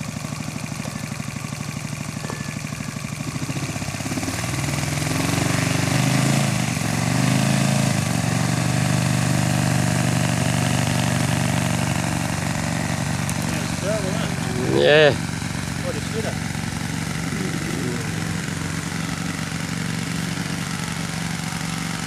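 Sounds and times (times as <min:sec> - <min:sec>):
model aircraft engine revving: 0:02.1 - 0:22.0.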